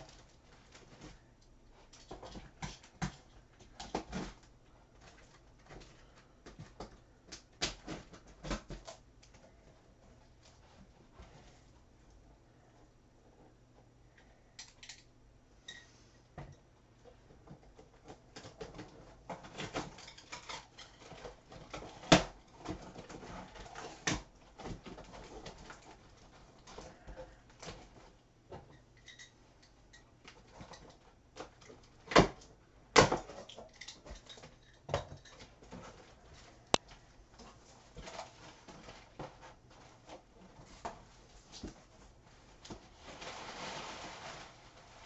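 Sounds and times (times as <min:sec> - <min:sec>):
cardboard box rustling and scraping: 0:42.7 - 0:45.0.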